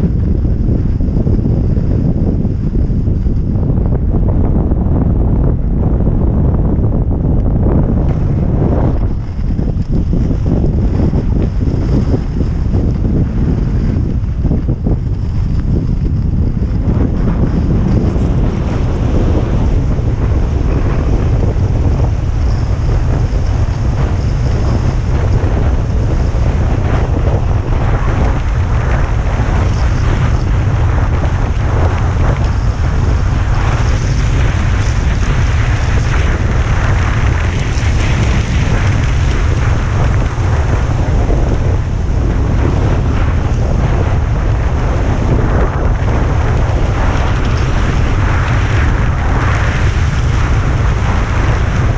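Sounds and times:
skis scraping over packed snow: 0:00.0 - 0:51.9
wind buffeting microphone: 0:00.0 - 0:51.9.

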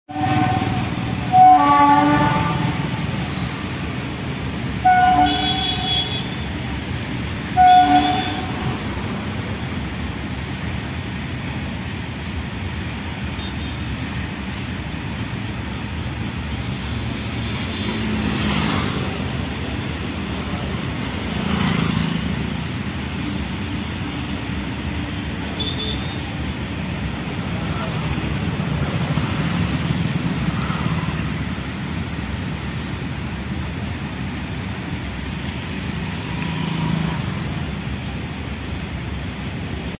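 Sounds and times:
locomotive horn blasts: 0:00.1 - 0:03.4, 0:04.8 - 0:06.6, 0:07.5 - 0:08.9
freight train wagons rumbling: 0:00.1 - 0:39.9.

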